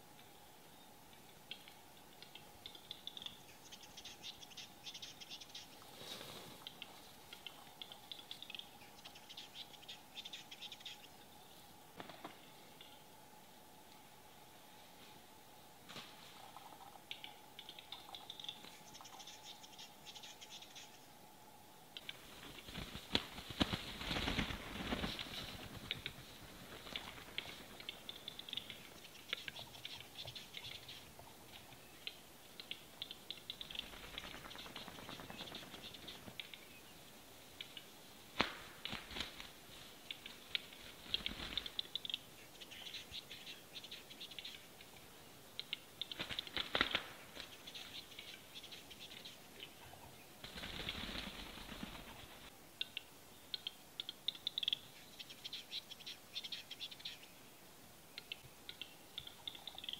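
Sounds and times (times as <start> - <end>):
heavy wing flapping: 22.3 - 27.8, 50.4 - 52.5.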